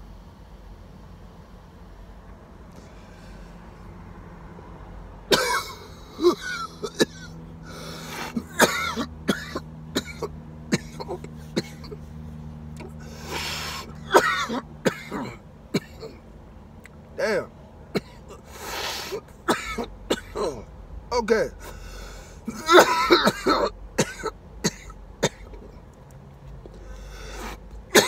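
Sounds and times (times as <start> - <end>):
man coughing hard: 5.3 - 7.3, 8.2 - 12.1, 13.3 - 16.2, 17.3 - 18.5, 19.1 - 20.6, 22.4 - 25.6
raspy exhales: 7.6 - 8.5, 12.8 - 14.1, 18.4 - 19.3, 21.6 - 22.6, 26.8 - 27.7
throat clearing: 8.3 - 12.1.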